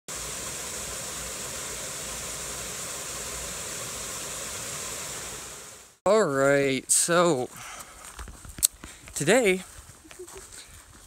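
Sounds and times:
waterfall splashing into pool: 0.1 - 6.0.

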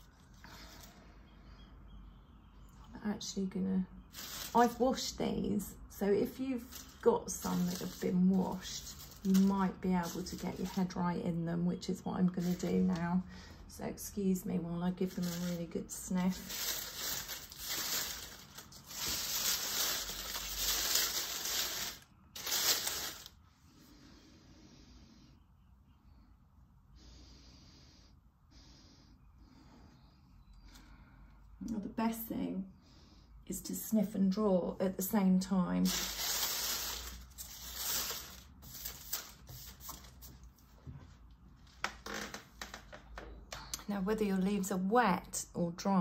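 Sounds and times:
dry leaves rustling and crackling: 4.1 - 5.1, 6.2 - 11.0, 12.4 - 12.8, 15.1 - 23.4, 35.8 - 40.0.

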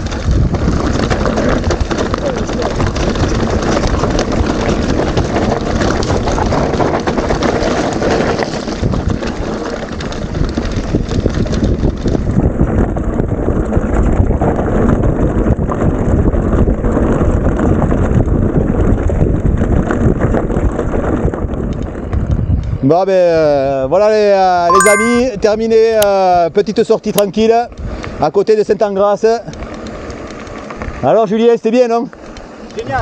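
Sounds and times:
wind rushing over microphone: 0.0 - 6.8, 10.2 - 22.8.

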